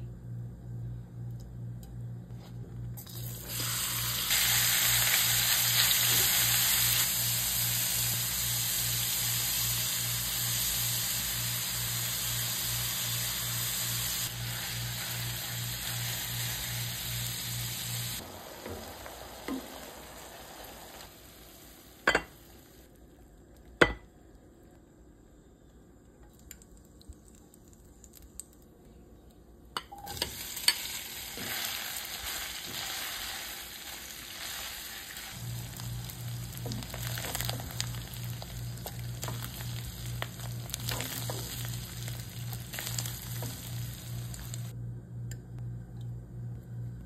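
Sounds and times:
meat sizzling in a pan: 0:03.4 - 0:22.5, 0:30.1 - 0:44.7.

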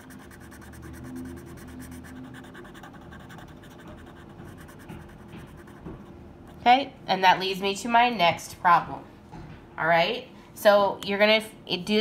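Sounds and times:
marker scratching on paper: 0:00.0 - 0:06.0.

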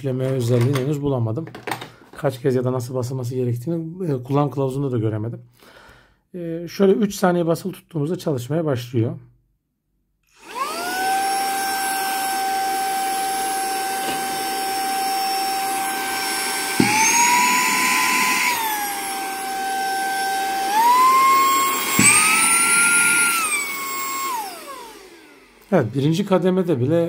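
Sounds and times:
hand vacuum motor whining: 0:10.3 - 0:26.4.

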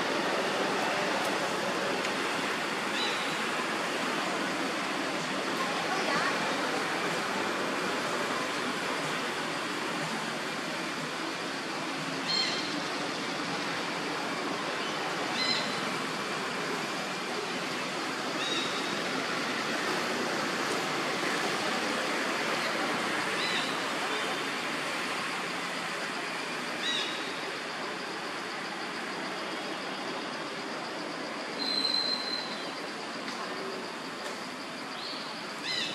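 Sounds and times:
rushing outdoor background noise: 0:00.0 - 0:35.9.

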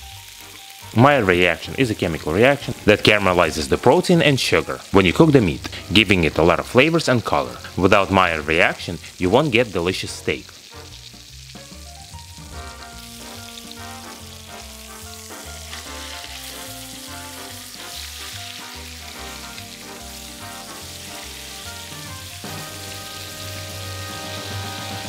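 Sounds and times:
steaks sizzling in a skillet: 0:00.0 - 0:25.0
background music with bass line: 0:10.7 - 0:25.0.

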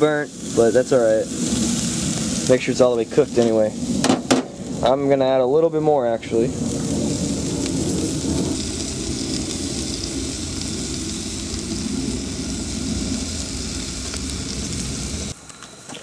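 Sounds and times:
low rumble: 0:00.0 - 0:15.4
meat sizzling on a grill: 0:00.0 - 0:15.4.

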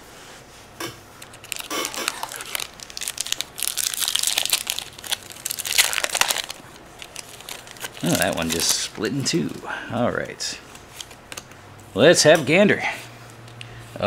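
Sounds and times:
foil wrapper crinkling and tearing: 0:01.2 - 0:09.6.

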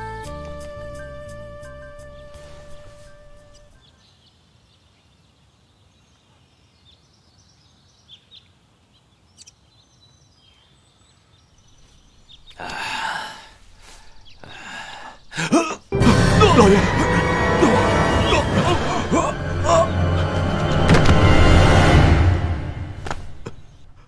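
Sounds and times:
man breathing out heavily: 0:12.5 - 0:16.3.

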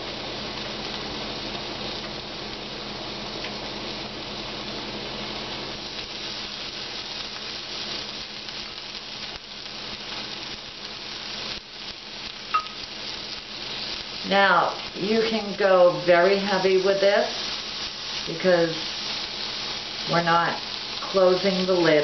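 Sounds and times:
chicken sizzling on a grill: 0:00.0 - 0:22.0
sharp clink: 0:12.5 - 0:12.8.

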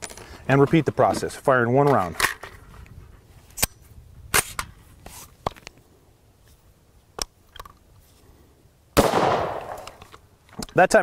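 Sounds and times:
loud rifle shot: 0:09.0 - 0:10.0
rifle handling clicks: 0:09.5 - 0:10.8.

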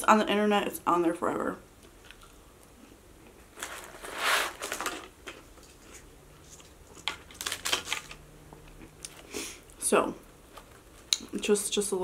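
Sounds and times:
paper carton crackling: 0:03.6 - 0:05.1.

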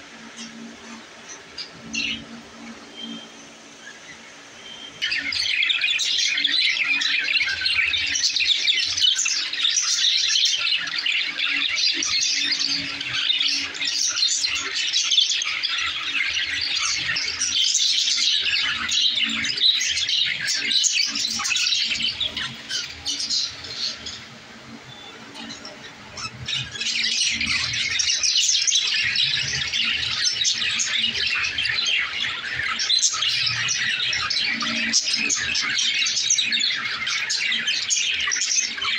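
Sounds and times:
flock of budgerigars chattering: 0:00.0 - 0:38.9.

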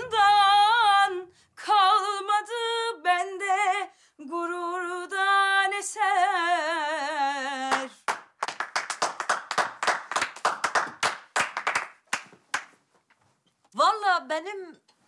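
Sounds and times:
woman singing with vibrato: 0:00.0 - 0:08.1
people clapping: 0:07.6 - 0:12.8.

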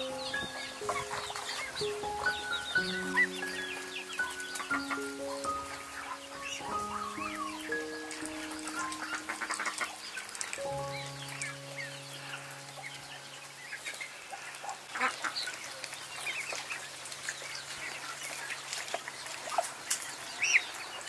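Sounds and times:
held music chord: 0:00.0 - 0:14.7
ducks calling: 0:00.0 - 0:20.8.

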